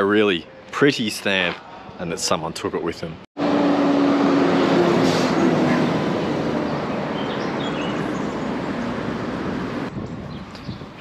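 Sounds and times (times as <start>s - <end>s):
passing vehicle rushing: 3.4s - 9.9s.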